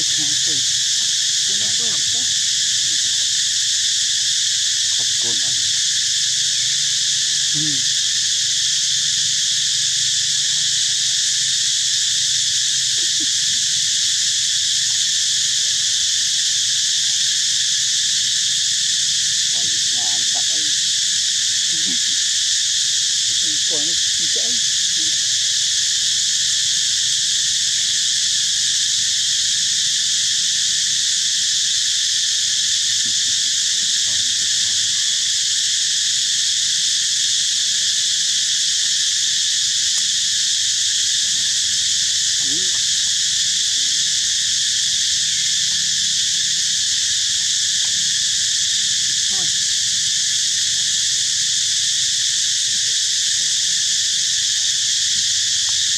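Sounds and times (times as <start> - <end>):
insect chorus: 0.0 - 55.9
faint short calls: 4.9 - 5.9, 7.4 - 8.0, 21.7 - 22.2.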